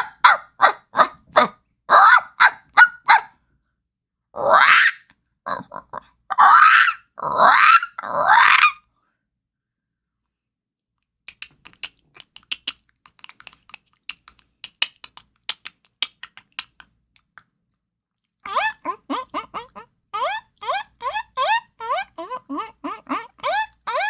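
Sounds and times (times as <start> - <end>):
person imitating parrot squawks: 0.0 - 3.2, 4.4 - 8.8, 18.4 - 24.0
person imitating guinea pig squeaks: 4.4 - 8.8, 11.3 - 17.5, 18.4 - 24.0
person making clicking chitters: 11.0 - 19.8.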